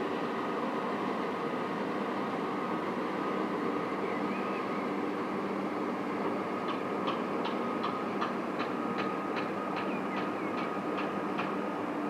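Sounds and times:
ship engine drone: 0.0 - 12.0.

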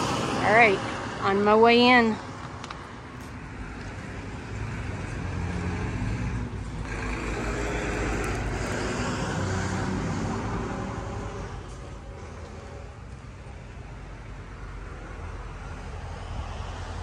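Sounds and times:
vehicle passing by: 3.5 - 12.6.

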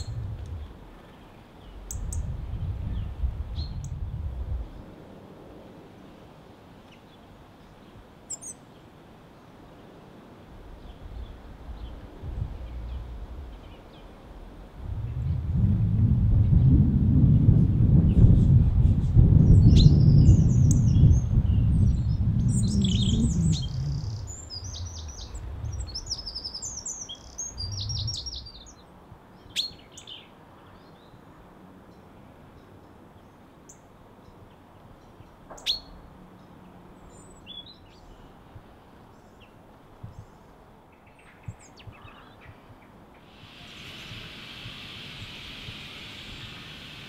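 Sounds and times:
low rumble: 0.0 - 1.0, 11.2 - 26.2
songbirds chirping: 0.0 - 5.0, 5.9 - 15.5, 18.0 - 47.0.

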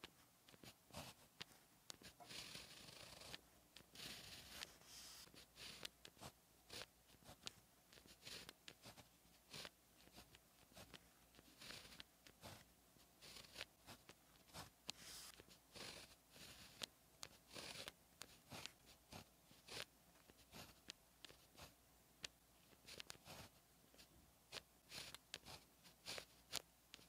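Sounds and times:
pen scratching on paper: 0.0 - 21.8, 22.6 - 27.0.

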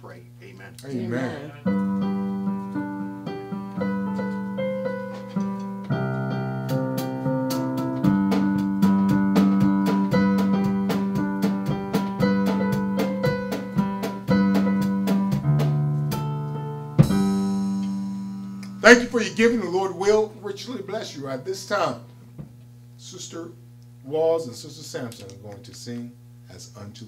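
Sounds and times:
slow piano chords: 1.4 - 20.5.

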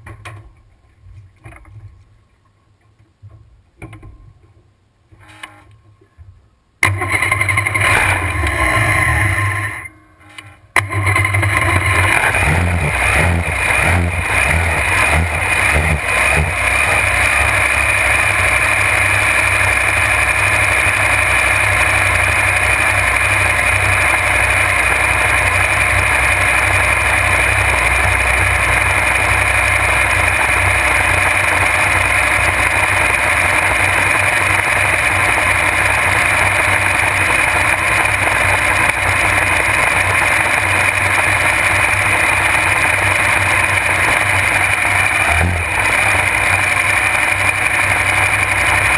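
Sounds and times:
boat engine running: 10.8 - 48.9.

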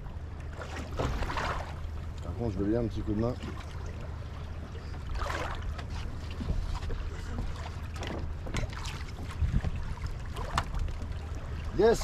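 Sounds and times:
water slapping boat hull: 0.0 - 12.0
splashes and knocks: 0.4 - 2.4, 3.1 - 11.7
wind rumbling on microphone: 8.4 - 12.0.

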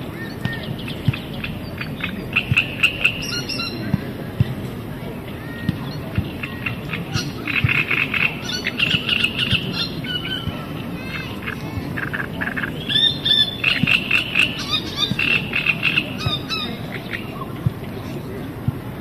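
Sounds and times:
frogs croaking: 0.0 - 3.9, 6.2 - 10.4, 11.4 - 17.6
small birds chirping: 0.0 - 19.0.

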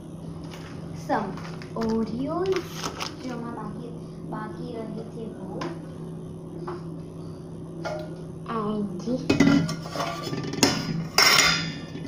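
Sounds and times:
dishes and cutlery clattering: 9.3 - 12.0.

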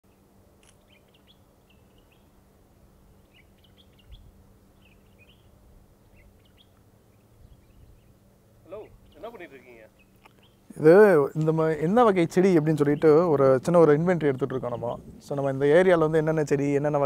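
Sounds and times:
small birds chirping: 0.1 - 17.0
steady low hum: 0.1 - 17.0
light low rumble: 0.2 - 17.0.

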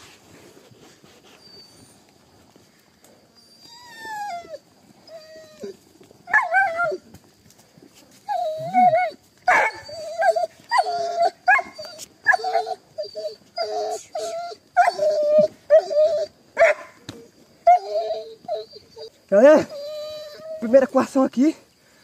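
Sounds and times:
dog yelping and whining: 3.4 - 7.1, 8.3 - 16.9, 17.6 - 20.8
hound howling: 3.6 - 7.1, 8.3 - 16.4.

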